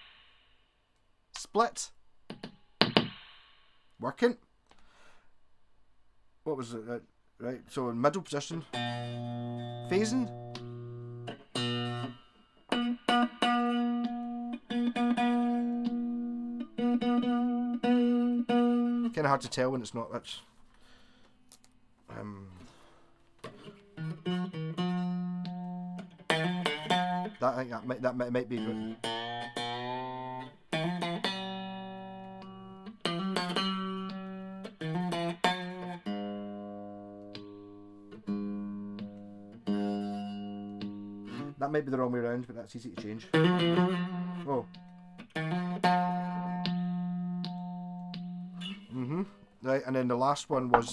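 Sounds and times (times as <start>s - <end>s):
electric guitar notes and chords: 8.6s - 19.2s, 23.4s - 41.6s, 43.2s - 49.4s
electric guitar chord strummed: 8.7s - 19.1s.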